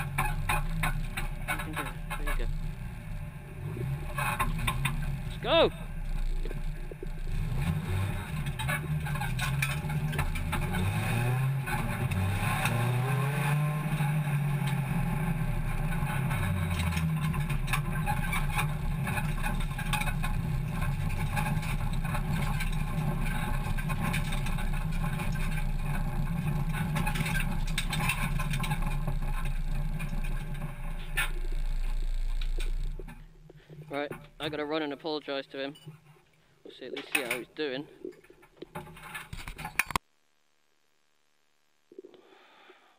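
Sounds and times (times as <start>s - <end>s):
clicks and rattles: 0.0s - 2.7s, 4.1s - 5.3s, 8.1s - 12.8s, 15.7s - 34.6s, 36.9s - 40.0s
car engine at low revs: 0.0s - 34.9s.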